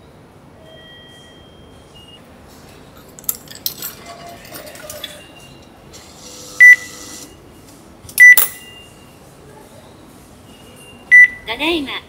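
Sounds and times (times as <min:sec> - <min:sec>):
coins clinking into machine: 0:02.9 - 0:06.4, 0:08.1 - 0:08.8.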